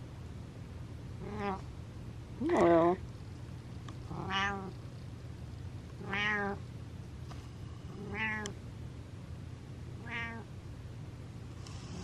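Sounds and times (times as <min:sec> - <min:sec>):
cat meowing: 0:01.2 - 0:01.6, 0:04.2 - 0:04.7, 0:06.0 - 0:06.6, 0:08.0 - 0:08.5, 0:10.0 - 0:10.5.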